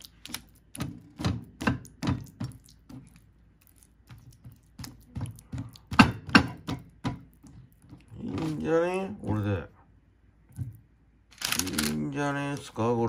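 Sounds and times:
spatula tapping and scraping plate: 0:04.1 - 0:08.6.

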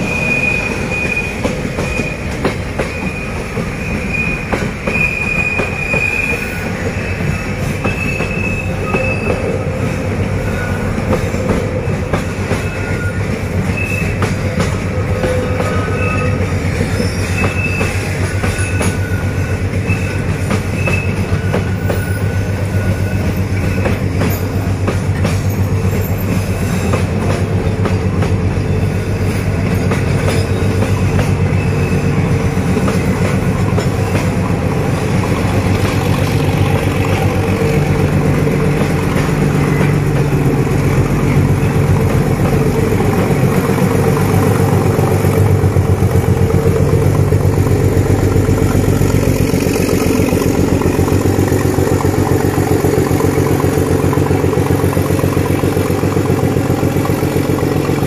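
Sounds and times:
wheel squeals: 0:00.0 - 0:27.2, 0:28.0 - 0:45.5
rail joint clicks: 0:00.0 - 0:58.0
train wheels rumbling on rail: 0:00.0 - 0:58.0.

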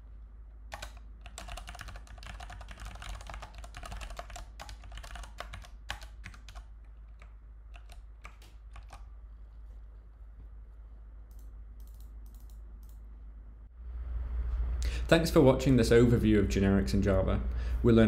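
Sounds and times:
typing on keyboard: 0:00.7 - 0:09.1.

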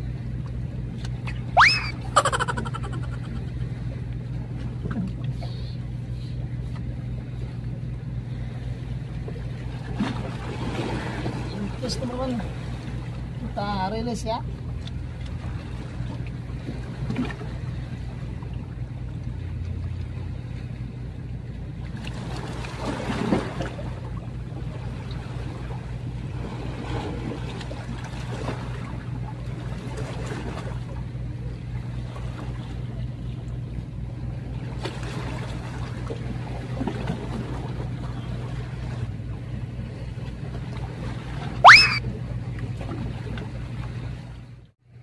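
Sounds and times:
boat engine droning: 0:00.0 - 0:44.7.

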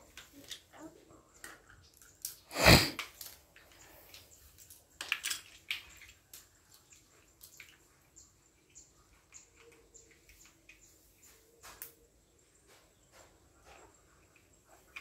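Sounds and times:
plastic blocks clicking and clattering: 0:03.0 - 0:06.5.

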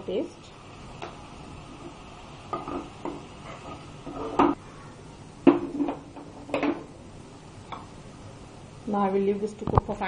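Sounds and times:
wooden spoon stirring in pot: 0:01.8 - 0:04.6.

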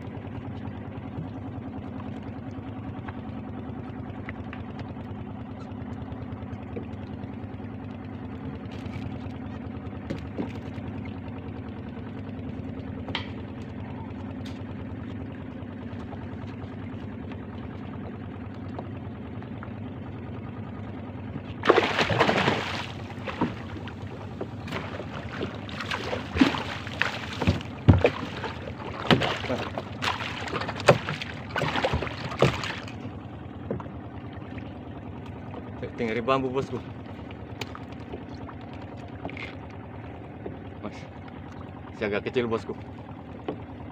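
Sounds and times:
steady low hum: 0:00.0 - 0:43.9
fish thrashing and splashing: 0:21.5 - 0:34.8.

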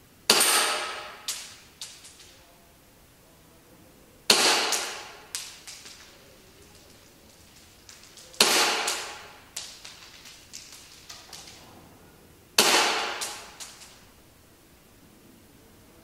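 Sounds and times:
airsoft pistol shots: 0:00.3 - 0:02.2, 0:04.3 - 0:06.1, 0:08.1 - 0:11.6, 0:12.6 - 0:14.0.

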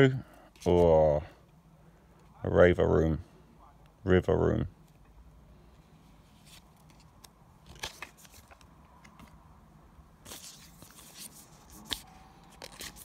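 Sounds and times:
trading cards rustling and clicking: 0:06.2 - 0:09.4, 0:10.2 - 0:13.0.

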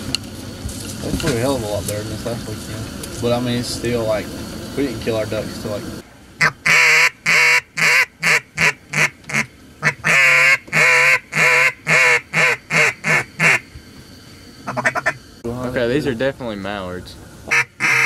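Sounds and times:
duck call quacking: 0:06.4 - 0:13.6, 0:14.6 - 0:15.2, 0:17.5 - 0:18.0.

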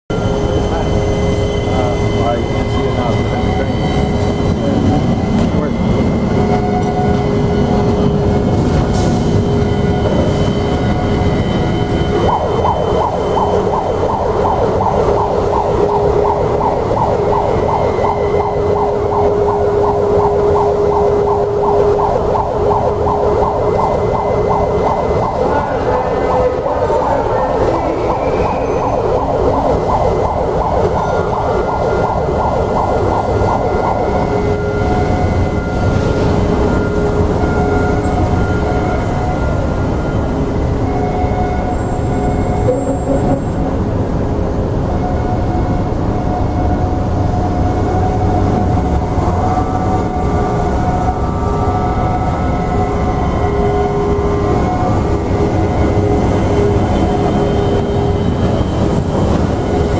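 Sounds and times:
warbling warning siren: 0:00.1 - 0:59.9.

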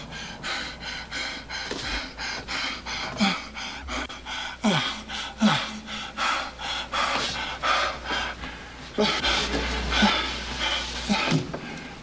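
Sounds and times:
man panting hard: 0:00.0 - 0:12.0
man groaning: 0:04.6 - 0:05.9.

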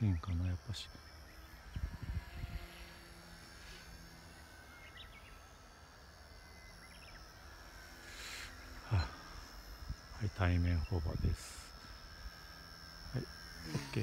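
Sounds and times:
distant toy helicopter whine: 0:00.0 - 0:14.0
faint chirps: 0:00.0 - 0:14.0
low wind rumble: 0:01.6 - 0:03.0.

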